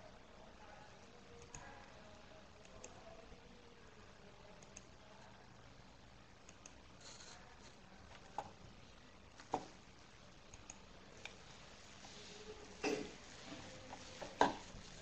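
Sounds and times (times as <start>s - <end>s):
computer mouse clicks: 4.6s - 4.9s, 6.4s - 7.4s, 10.5s - 11.4s.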